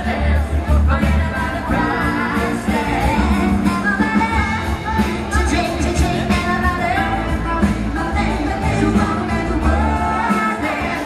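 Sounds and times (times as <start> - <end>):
lead singer singing: 0.0 - 11.0
live band playing: 0.0 - 11.0.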